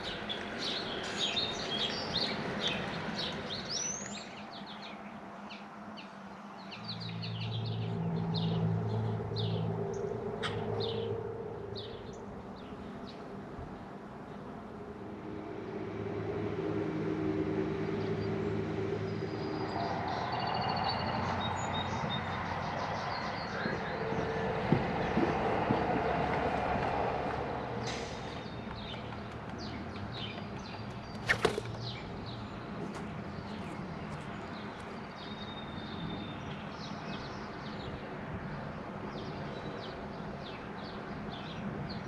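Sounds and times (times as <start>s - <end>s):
small birds chirping: 0.0s - 14.5s, 27.8s - 42.0s
motor vehicle passing: 6.6s - 35.3s.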